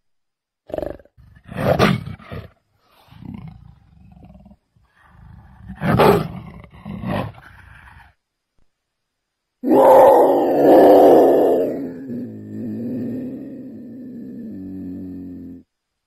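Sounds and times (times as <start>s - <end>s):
big cat roaring and growling: 9.6s - 15.7s.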